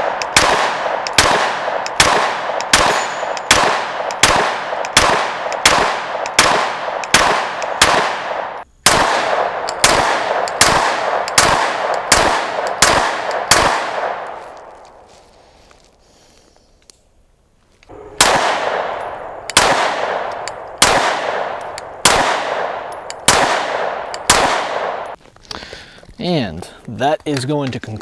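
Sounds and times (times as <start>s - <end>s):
pistol shots echoing: 0.0s - 14.8s, 17.9s - 25.2s.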